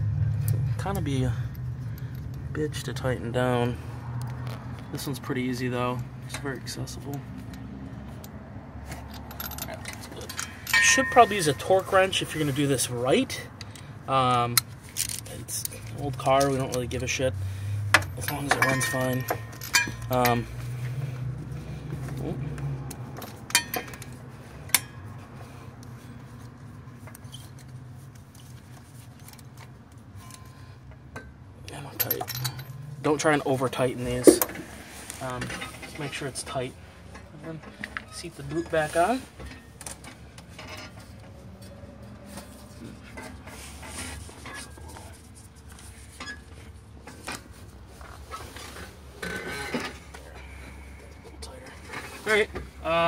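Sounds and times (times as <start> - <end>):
socket wrench metal clinks: 9.2 - 11.6, 18.2 - 20.4.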